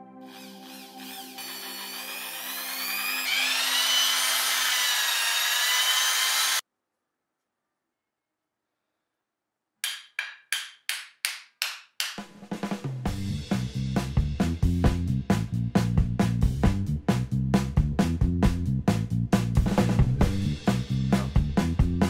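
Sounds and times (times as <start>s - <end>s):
electric drill drilling wood: 0.2s - 6.6s.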